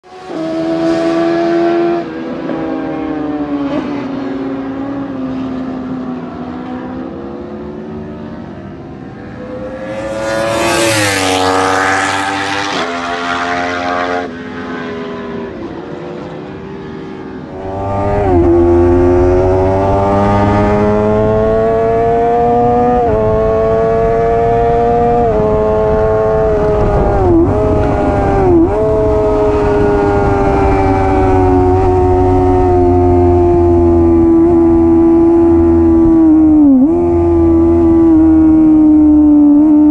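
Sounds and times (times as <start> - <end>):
motorcycle engine at high revs: 0.0 - 39.9
racing motorcycles passing: 0.0 - 39.9
wind noise: 17.2 - 39.9.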